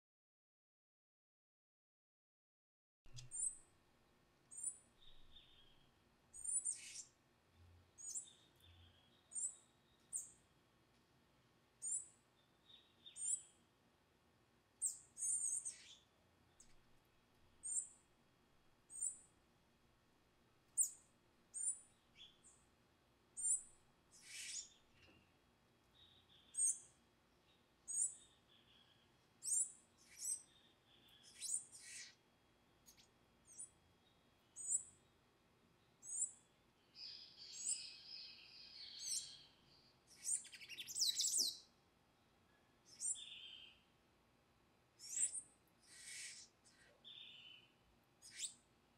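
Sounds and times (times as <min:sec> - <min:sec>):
fledgling bird begging calls: 0:45.9 - 0:46.5.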